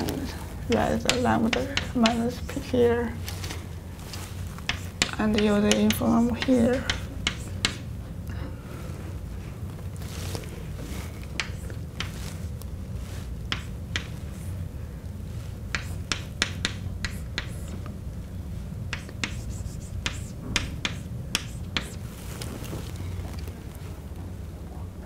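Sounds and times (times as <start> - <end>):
low steady hum: 0.0 - 25.0
chalk tapping on blackboard: 0.7 - 2.5, 4.6 - 7.9, 11.4 - 12.3, 13.5 - 14.5, 15.7 - 17.8, 18.9 - 22.0.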